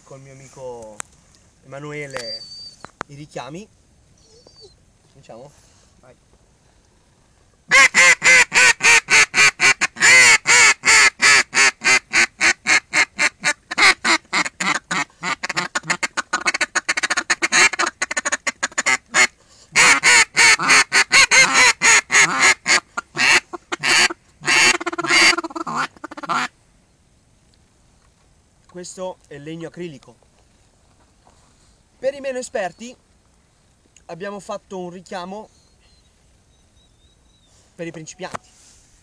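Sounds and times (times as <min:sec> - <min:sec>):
duck calls quacking: 0:07.7 - 0:26.5.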